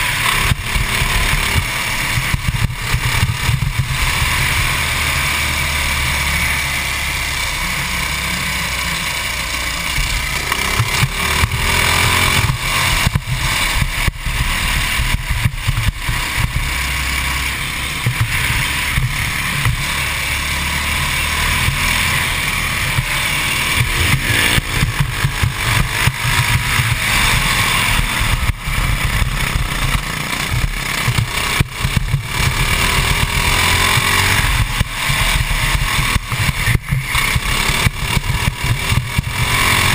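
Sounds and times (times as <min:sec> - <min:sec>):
kart engine running hard: 0:00.0 - 0:39.9.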